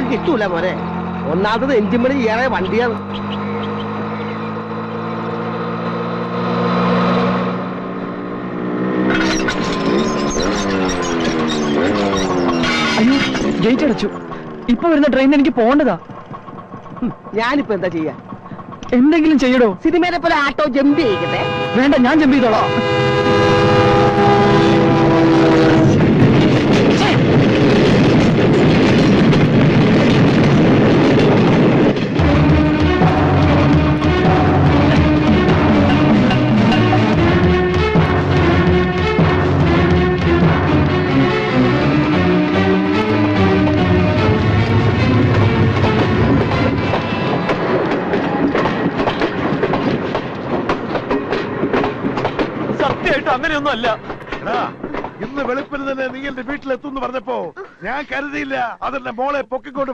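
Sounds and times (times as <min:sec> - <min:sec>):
motorcycle engines: 0:00.0 - 0:50.5
auto-rickshaw engine running: 0:00.0 - 0:56.6
train passing: 0:00.0 - 0:57.4
train horn: 0:20.8 - 0:26.6, 0:32.2 - 0:47.6.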